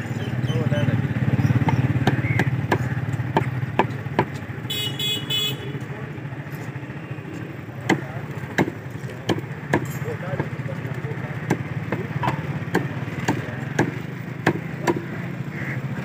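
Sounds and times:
motorcycle engine running: 0:00.0 - 0:16.0
cleaver chopping on wooden block: 0:01.6 - 0:04.5, 0:07.8 - 0:10.6, 0:11.4 - 0:15.1
vehicle horn toot: 0:04.6 - 0:05.9.

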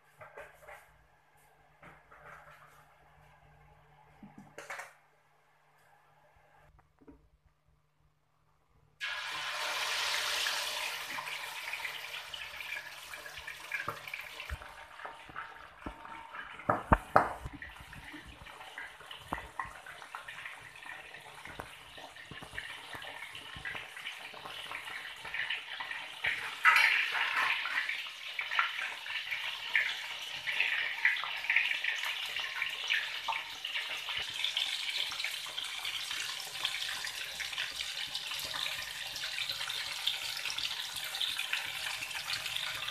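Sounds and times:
fish sizzling in hot oil: 0:09.0 - 0:42.9.

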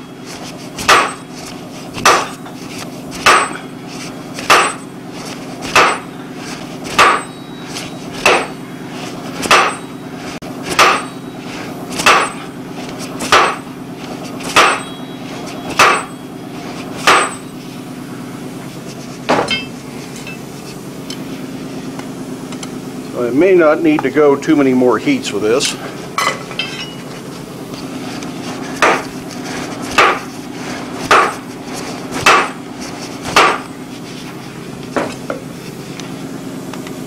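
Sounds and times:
steady hum: 0:00.0 - 0:37.0
sledgehammer pounding hot steel: 0:00.1 - 0:08.6, 0:09.3 - 0:17.6, 0:19.2 - 0:20.4, 0:28.6 - 0:33.9.

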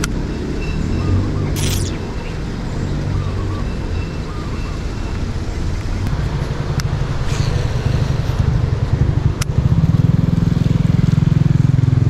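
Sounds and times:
sharp click: 0:01.6 - 0:02.0.

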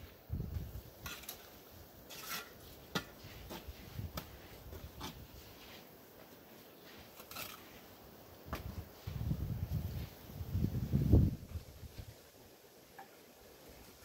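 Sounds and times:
trowel scraping and tapping bricks: 0:01.0 - 0:05.7, 0:07.1 - 0:07.8.

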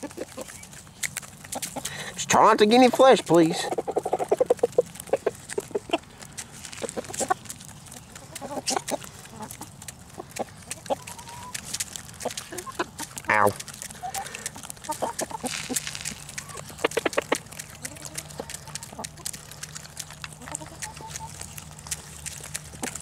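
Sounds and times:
chickens clucking: 0:00.0 - 0:23.0
chickens pecking: 0:00.0 - 0:23.0.

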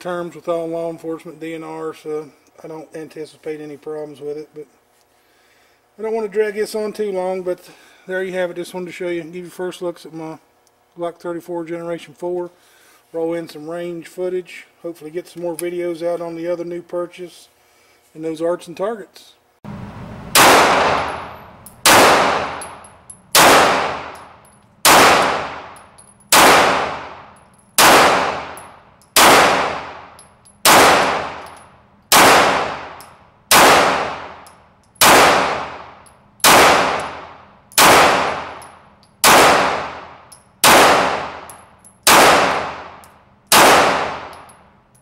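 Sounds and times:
pistol shots echoing indoors: 0:20.3 - 0:44.8.

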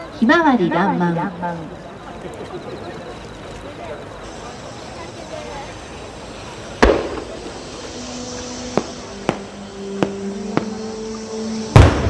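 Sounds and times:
fireworks bursting: 0:04.1 - 0:12.0.

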